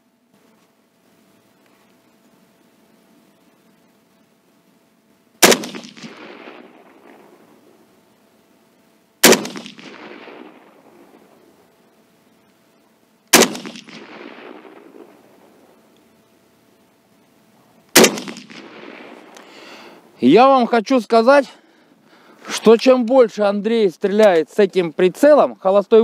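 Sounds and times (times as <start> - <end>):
echo of gunshot: 5.4 - 7.6, 9.2 - 11.4, 13.3 - 15.6, 17.9 - 19.3
rifle shots: 5.4 - 7.8, 9.2 - 11.5, 13.3 - 15.8, 17.9 - 19.4.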